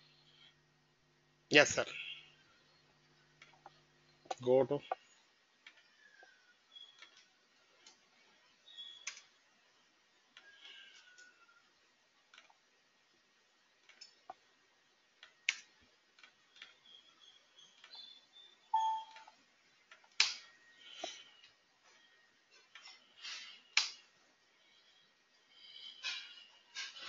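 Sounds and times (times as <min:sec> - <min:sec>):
faint tone: 0:18.7 - 0:19.4.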